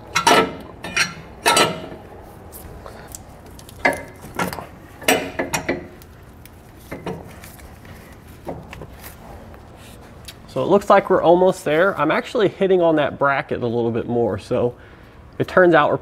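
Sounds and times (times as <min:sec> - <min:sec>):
metal bracket clanking: 0:00.0 - 0:02.1, 0:03.8 - 0:06.0.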